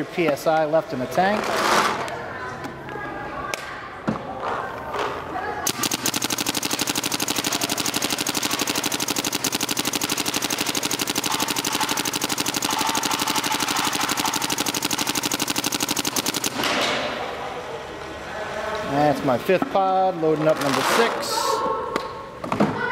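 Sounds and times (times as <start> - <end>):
paintball marker firing rapidly: 5.6 - 17.4.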